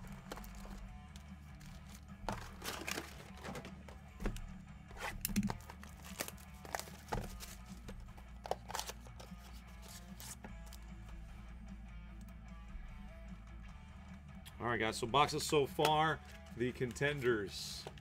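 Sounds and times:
packaging tearing and crinkling: 5.1s - 7.6s.

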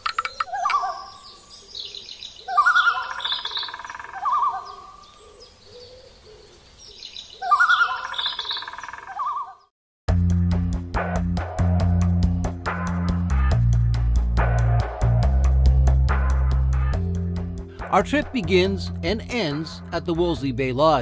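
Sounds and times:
high bird chirps: 0.0s - 5.2s, 6.8s - 9.7s
bird quavering calls: 0.0s - 6.6s, 7.4s - 9.7s.

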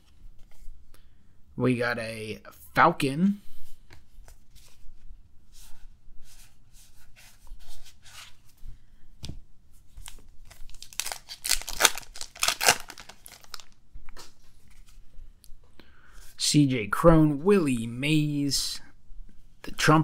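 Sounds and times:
cards rustling: 9.9s - 15.0s
foil pack tearing and crinkling: 10.7s - 13.8s.

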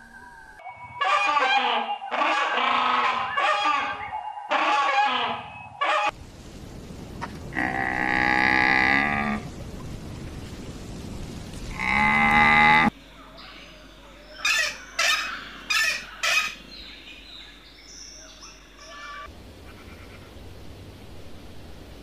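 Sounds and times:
camel calling: 14.4s - 16.6s.

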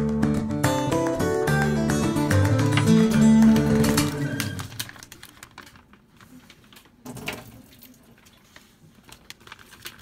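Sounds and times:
background music: 0.0s - 4.9s.

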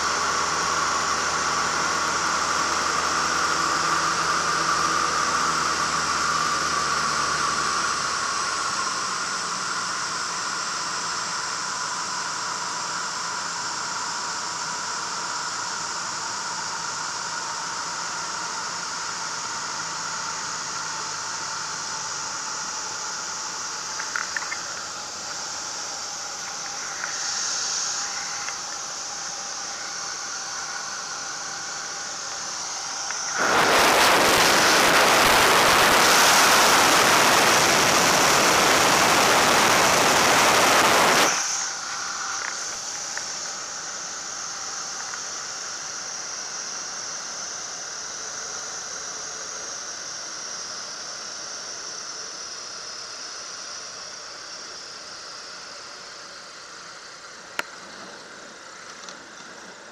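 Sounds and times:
plane engine and propeller hum: 0.0s - 59.9s
wind hiss: 14.6s - 58.8s
click: 24.0s - 24.7s
loud wind rush: 33.2s - 41.5s.

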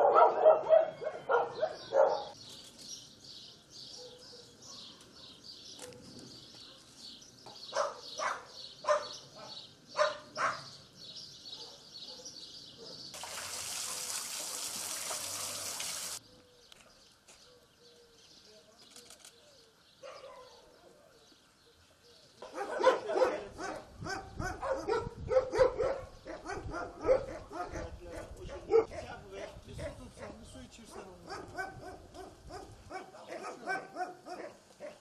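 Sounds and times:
dogs barking: 0.0s - 2.4s, 3.9s - 5.4s, 7.7s - 10.8s, 11.5s - 13.1s, 20.0s - 20.8s, 22.4s - 35.0s
small birds chirping: 0.4s - 13.2s, 16.1s - 30.0s.

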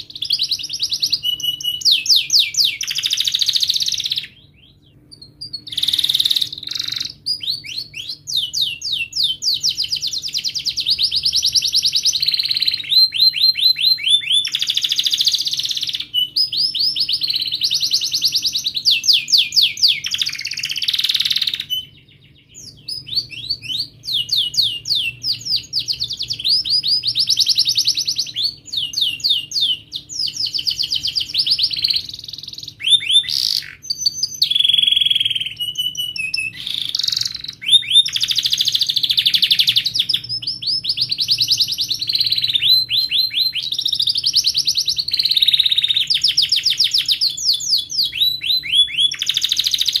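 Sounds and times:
canary singing trills: 0.0s - 50.0s.

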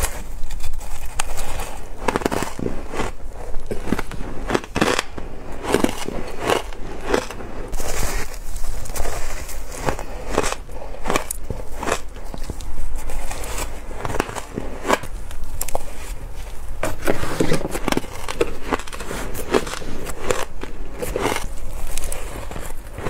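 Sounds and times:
shaved ice crunching in mouth: 0.0s - 23.0s.

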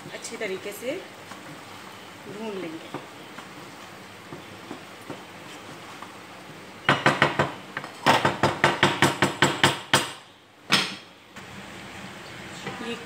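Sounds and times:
wooden spoon knocking saucepan: 6.9s - 7.6s.

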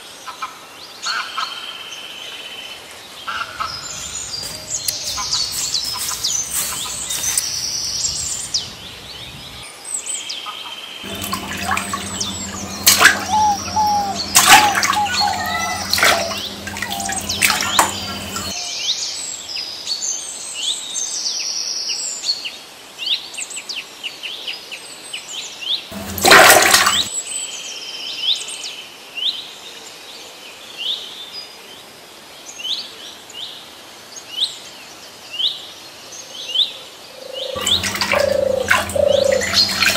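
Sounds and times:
birds chirping: 3.6s - 9.4s, 11.1s - 18.5s, 25.9s - 27.1s, 37.4s - 39.9s
low hum: 11.1s - 18.5s, 25.9s - 27.1s, 37.6s - 39.9s
rush of water-like noise: 11.1s - 18.5s, 25.9s - 27.1s, 37.6s - 39.9s.

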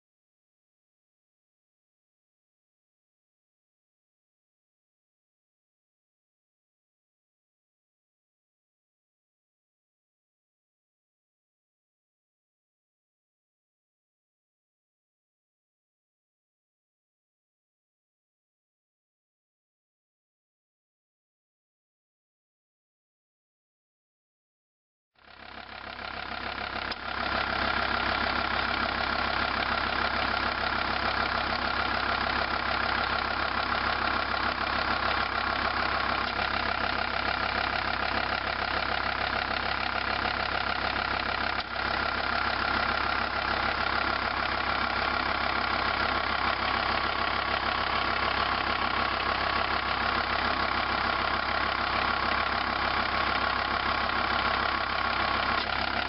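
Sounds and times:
diesel engine idling: 25.2s - 56.0s
compressor clutch click: 55.0s - 56.0s.

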